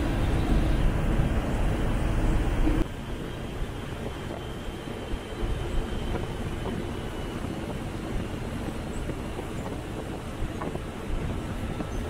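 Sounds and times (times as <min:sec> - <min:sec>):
engine and road rumble: 0:00.0 - 0:12.0.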